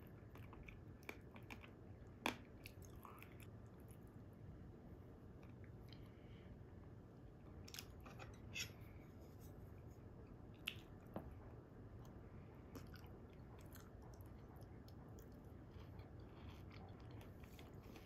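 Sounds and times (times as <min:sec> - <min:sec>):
chewing soft food: 0:00.0 - 0:04.4, 0:10.1 - 0:18.0.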